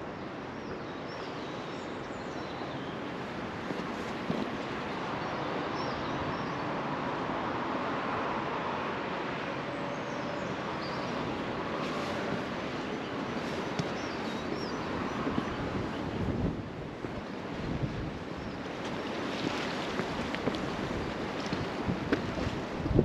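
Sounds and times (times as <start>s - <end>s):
water rushing down stone steps: 18.6s - 23.0s.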